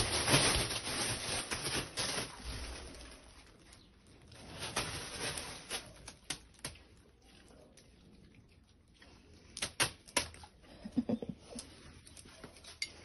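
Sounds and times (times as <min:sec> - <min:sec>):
rustling of dogs moving: 0:00.0 - 0:09.0.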